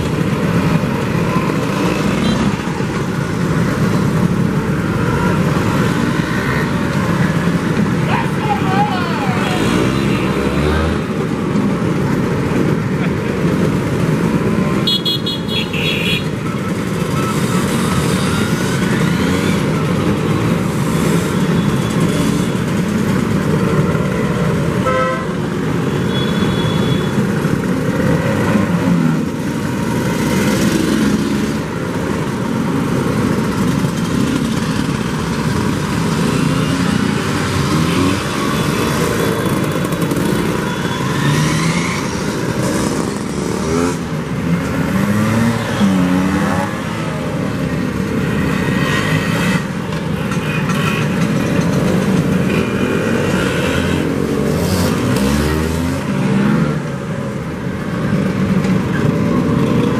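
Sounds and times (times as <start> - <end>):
scooter engines revving: 0.0 - 59.9
scooter horns tooting: 14.8 - 16.5, 24.8 - 27.4.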